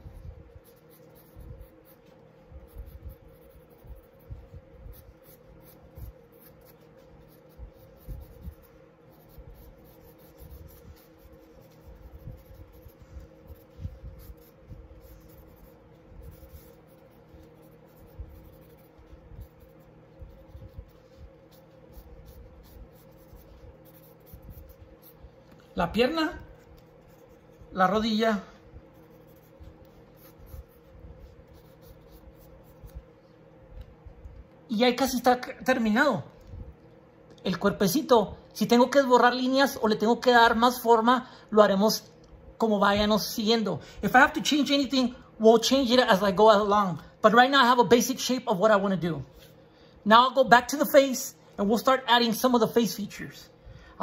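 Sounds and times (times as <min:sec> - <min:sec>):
pencil scratching on paper: 0:00.0 - 0:25.3, 0:26.2 - 0:27.8, 0:28.9 - 0:33.0
low steady hum: 0:00.0 - 0:54.0.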